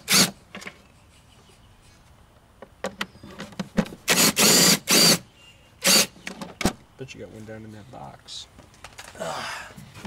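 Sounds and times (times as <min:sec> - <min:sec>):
impact driver bursts: 0:00.0 - 0:00.4, 0:04.1 - 0:05.2, 0:05.8 - 0:06.2.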